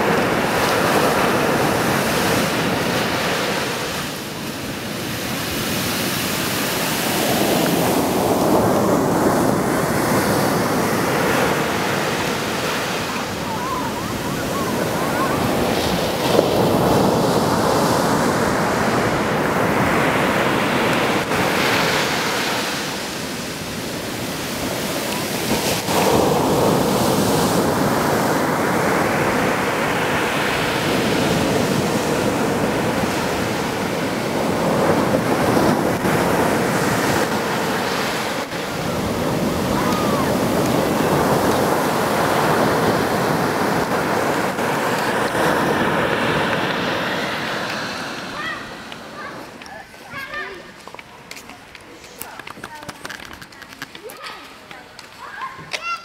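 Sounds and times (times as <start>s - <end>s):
ocean surf breaking on a beach: 0.0s - 56.0s.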